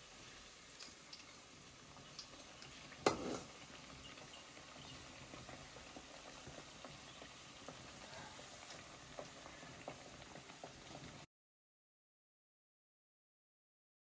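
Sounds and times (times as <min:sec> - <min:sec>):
oil sizzling and crackling: 0:00.0 - 0:11.3
ladle knocking on pan: 0:03.0 - 0:03.6.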